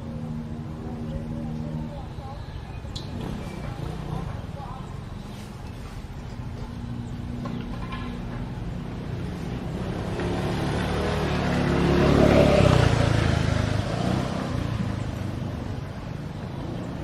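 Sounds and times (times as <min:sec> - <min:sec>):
motor vehicle passing by: 0:00.0 - 0:17.0.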